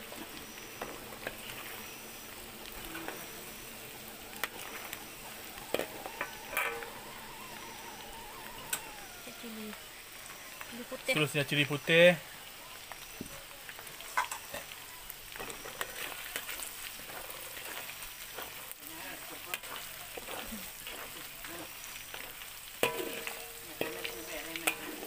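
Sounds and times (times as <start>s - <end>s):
chillies sizzling in hot lard: 0.0s - 25.0s
metal spatula scraping a wok: 19.6s - 21.3s, 22.0s - 25.0s.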